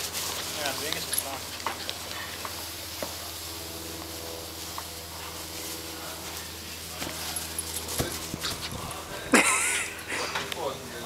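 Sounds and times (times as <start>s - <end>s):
steady low hum: 0.0s - 11.0s
ball thumps and scuffs on grass: 7.9s - 8.8s.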